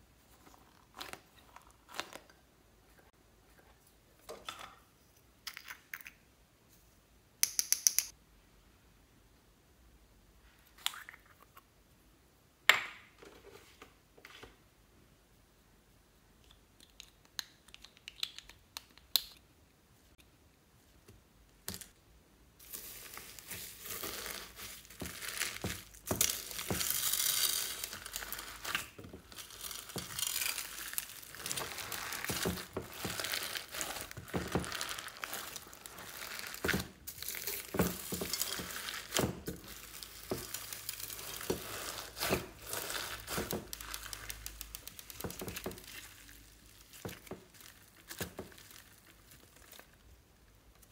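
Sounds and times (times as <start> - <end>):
hands squishing crackling slime: 22.7 - 50.1.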